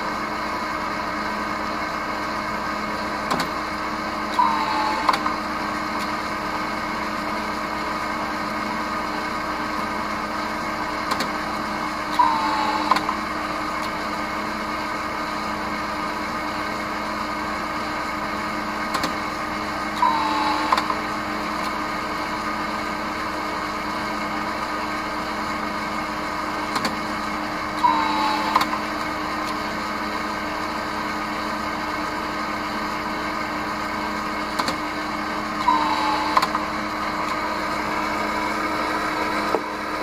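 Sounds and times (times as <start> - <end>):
machine humming: 0.0 - 31.6, 32.8 - 40.0
machine whine and clicks: 3.2 - 6.3, 11.0 - 14.3, 18.8 - 21.9, 26.6 - 29.8, 34.2 - 38.6.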